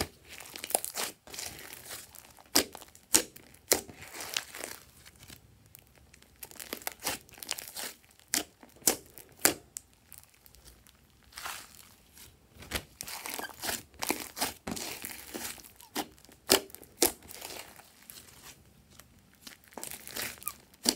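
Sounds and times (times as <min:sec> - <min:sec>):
slime squeezed by hand: 0:19.8 - 0:20.9.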